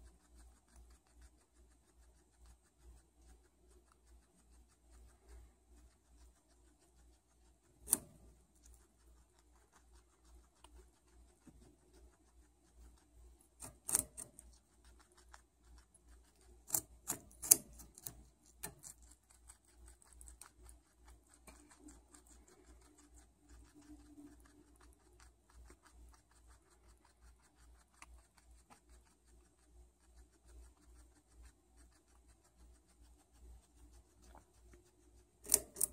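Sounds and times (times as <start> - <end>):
guinea pig crunching carrot: 0.0 - 35.9.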